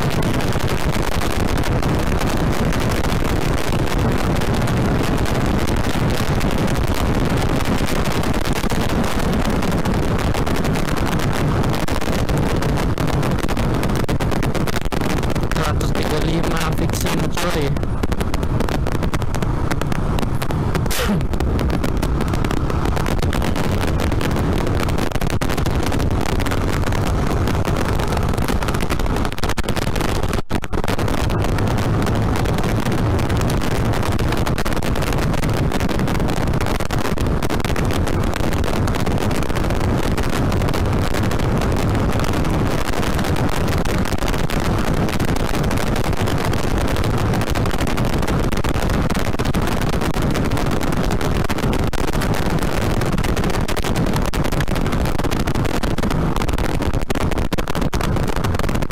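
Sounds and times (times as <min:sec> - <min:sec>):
wind rush on microphone: 0:00.0 - 0:58.9
motorcycle engine accelerating: 0:17.8 - 0:29.3, 0:30.9 - 0:34.0.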